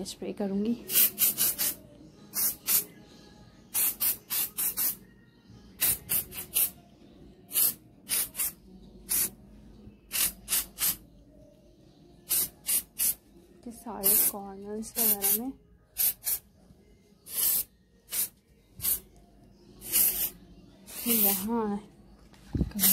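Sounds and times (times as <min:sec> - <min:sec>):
aerosol spray can hissing: 0:00.9 - 0:02.9, 0:03.7 - 0:05.0, 0:05.8 - 0:06.8, 0:07.5 - 0:09.3, 0:10.1 - 0:11.0, 0:12.3 - 0:13.2, 0:14.0 - 0:15.4, 0:16.0 - 0:16.4, 0:17.3 - 0:19.0, 0:19.8 - 0:21.5.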